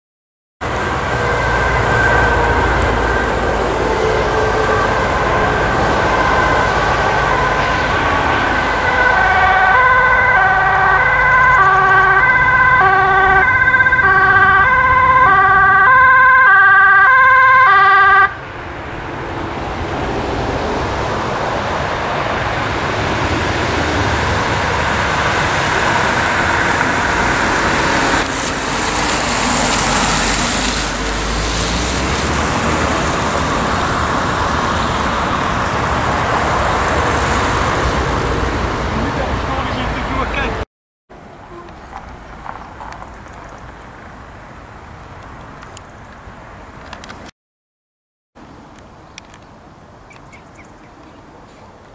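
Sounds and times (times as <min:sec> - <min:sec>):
two-tone emergency siren: 0:00.6 - 0:18.6, 0:23.4 - 0:36.0
car engine and tyres on road: 0:00.6 - 0:47.3, 0:48.4 - 0:51.9.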